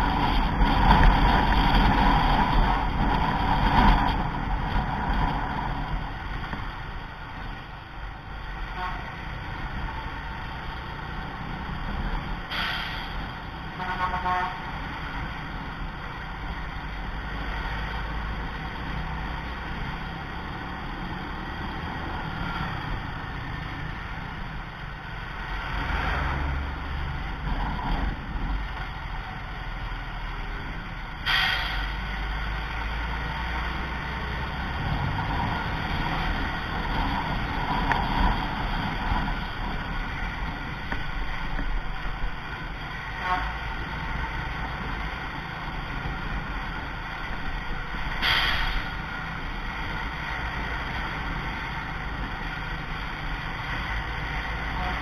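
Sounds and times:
wind on microphone: 0.0s - 6.9s
road and engine rumble: 0.0s - 55.0s
vehicle horn toot: 8.7s - 9.1s, 13.8s - 14.6s, 43.2s - 43.6s.

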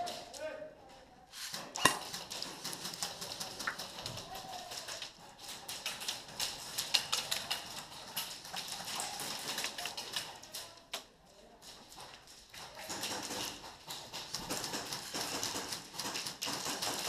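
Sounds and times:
airsoft guns firing: 1.8s - 2.4s
pellets striking plywood walls: 12.8s - 17.0s.

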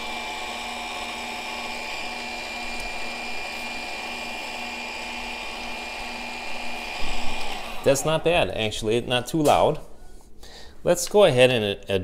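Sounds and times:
coffee grinder motor whining: 0.0s - 8.3s.

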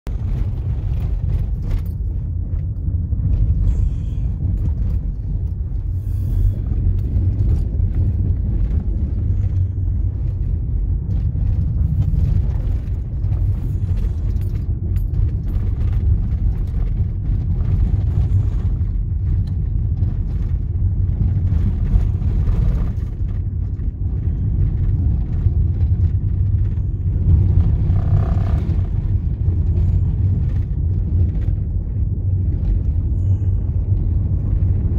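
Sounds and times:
car driving on gravel road: 0.1s - 34.9s
small clicks and rattles: 6.6s - 33.0s.

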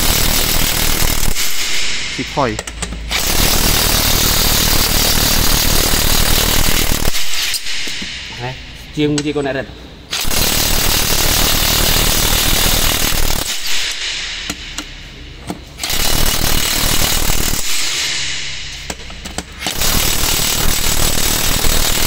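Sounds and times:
impact wrench hammering on lug nuts: 10.2s - 15.0s.

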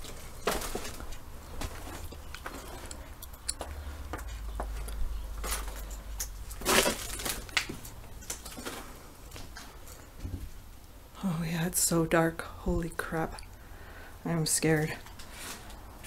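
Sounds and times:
footsteps crunching on debris: 0.0s - 9.7s.

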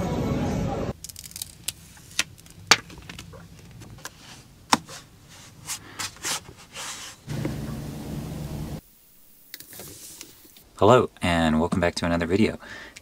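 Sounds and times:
steady low hum: 7.2s - 9.5s.

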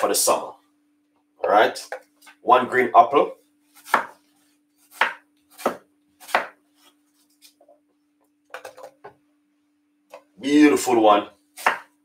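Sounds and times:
knife chopping apple on wooden board: 3.7s - 4.2s, 4.8s - 7.6s, 11.5s - 12.0s.

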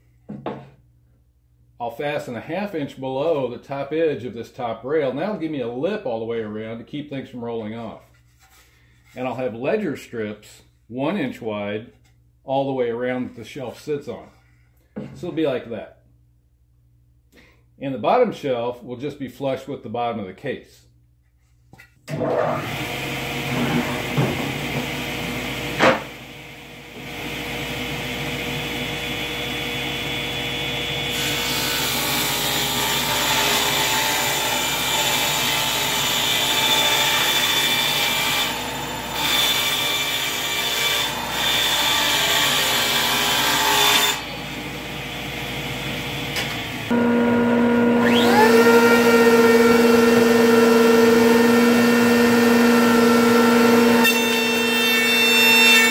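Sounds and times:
table saw ripping plywood: 22.1s - 26.2s, 46.0s - 55.9s
router motor spinning up: 44.4s - 54.0s.

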